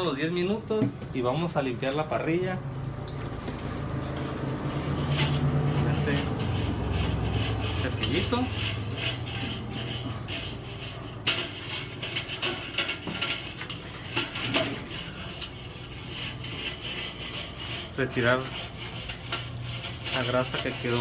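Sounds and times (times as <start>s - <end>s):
wire brush scraping grill grate: 4.0s - 21.0s.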